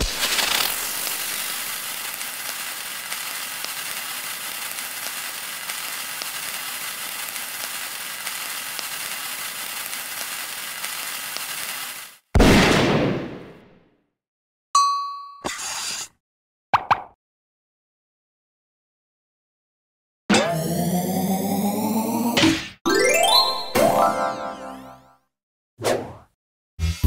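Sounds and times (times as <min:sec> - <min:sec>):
crackling hiss with ticks: 0:00.0 - 0:12.2.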